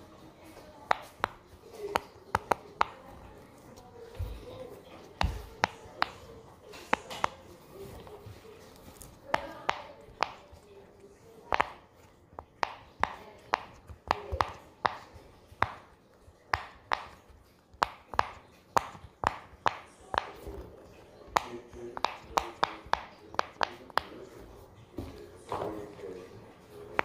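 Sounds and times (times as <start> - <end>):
fidget toy popping: 11.5 - 20.6.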